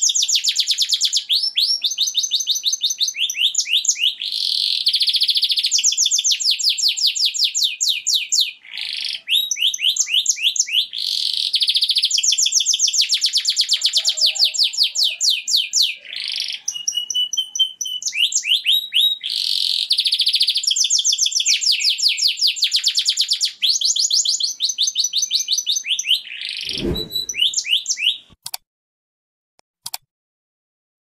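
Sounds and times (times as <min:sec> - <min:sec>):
short low rumble: 0:26.7 - 0:27.4.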